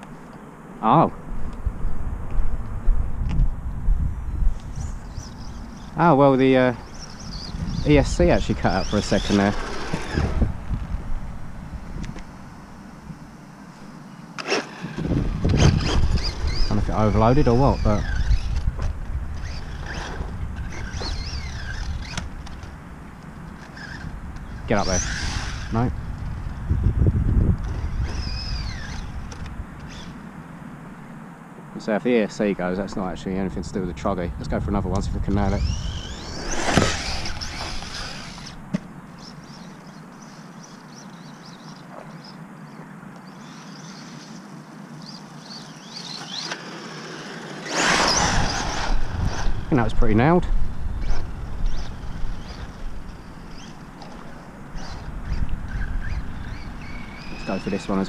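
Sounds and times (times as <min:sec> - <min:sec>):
wind noise on microphone: 0:01.2 - 0:13.4, 0:14.5 - 0:30.2, 0:32.9 - 0:38.7, 0:47.6 - 0:58.0
small birds chirping: 0:03.6 - 0:10.2, 0:13.0 - 0:33.9, 0:34.5 - 0:58.0
electric motor whining: 0:04.6 - 0:30.2, 0:35.2 - 0:42.3, 0:43.2 - 0:58.0
loud rushing noise: 0:47.1 - 0:52.3.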